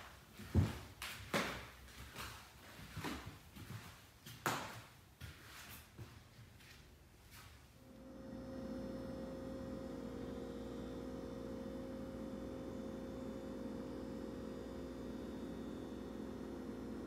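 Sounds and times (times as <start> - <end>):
electrical hum with tones: 7.8 - 17.0.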